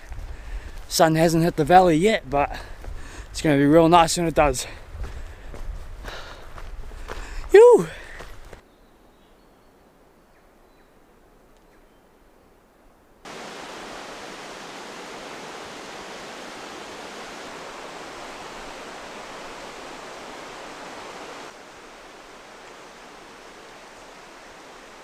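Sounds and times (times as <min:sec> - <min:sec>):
mountain river rushing: 0:13.2 - 0:25.0.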